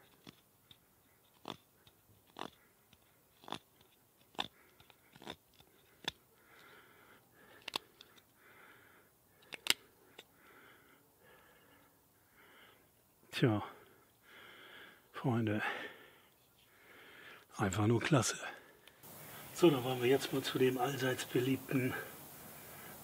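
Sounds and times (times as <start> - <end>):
knife shaving wood: 0.0 - 6.2.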